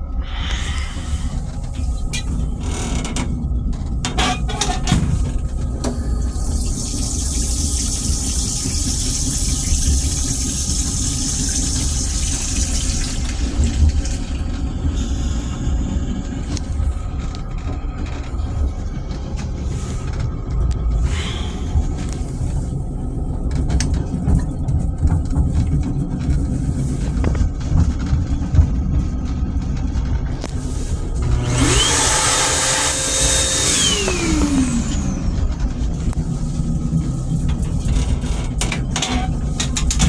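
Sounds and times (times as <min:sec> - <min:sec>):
railcar rumble: 0:00.0 - 0:40.0
toilet water rushing: 0:05.9 - 0:15.4, 0:31.3 - 0:35.6
flush mechanism clicks and knocks: 0:37.4 - 0:40.0.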